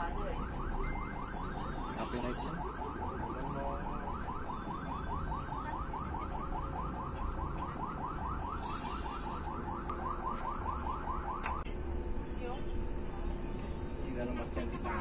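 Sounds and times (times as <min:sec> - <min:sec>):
bus engine rumble: 0:00.0 - 0:15.0
road noise: 0:00.0 - 0:15.0
electronic alarm chirping: 0:00.8 - 0:05.9, 0:06.7 - 0:11.6.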